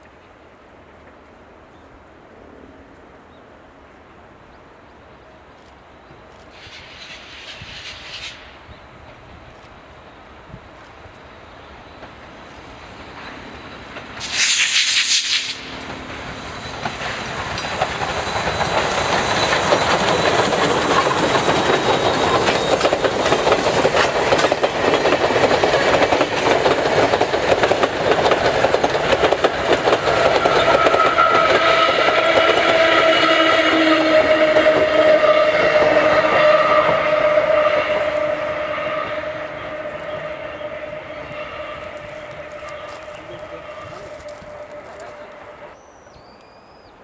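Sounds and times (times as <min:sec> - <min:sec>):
train wheels clattering on rails: 0:10.8 - 0:45.8
steam locomotive whistle: 0:30.1 - 0:45.7.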